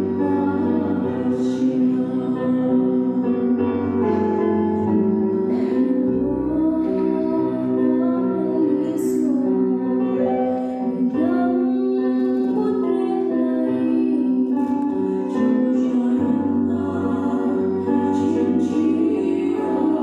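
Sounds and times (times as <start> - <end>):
woman singing into microphone: 0.0 - 4.8, 5.5 - 20.0.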